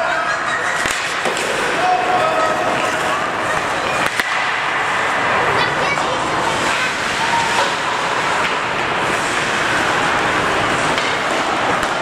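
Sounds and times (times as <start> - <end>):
arena noise: 0.0 - 12.0
skates on ice: 0.1 - 12.0.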